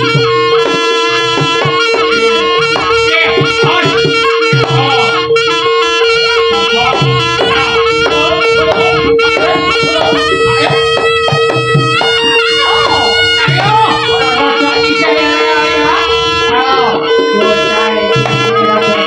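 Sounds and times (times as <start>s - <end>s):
low drum beats: 0.0s - 19.0s
shrill reed trumpet melody: 0.0s - 19.0s
steady held note: 0.0s - 19.0s.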